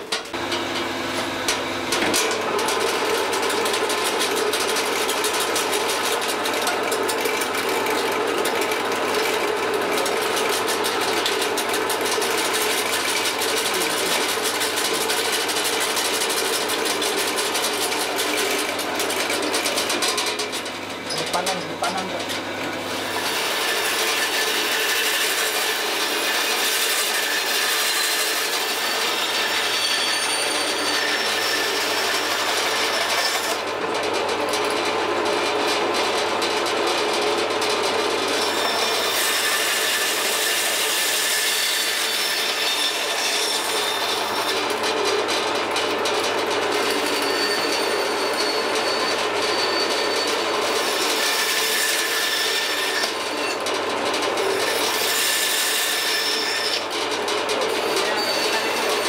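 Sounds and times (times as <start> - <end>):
band saw cutting: 0.0 - 59.0
squealing whine: 46.9 - 50.5.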